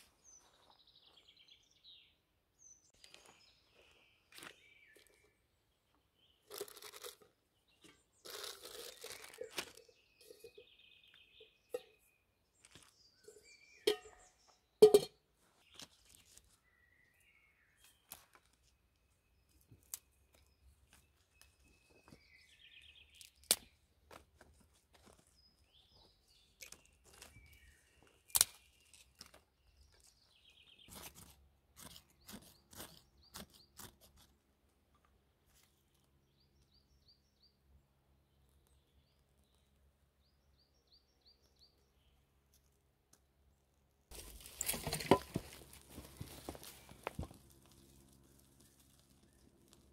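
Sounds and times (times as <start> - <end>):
small birds chirping: 0.1 - 15.0, 15.6 - 24.2, 24.9 - 34.4.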